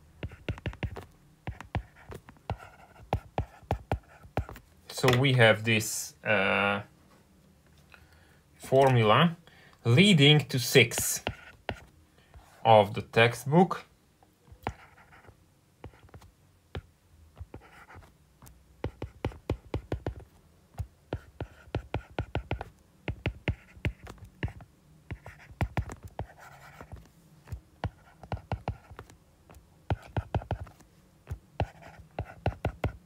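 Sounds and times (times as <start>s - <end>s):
stylus scratching on screen: 0.2s - 4.6s, 21.1s - 29.2s, 29.9s - 33.0s.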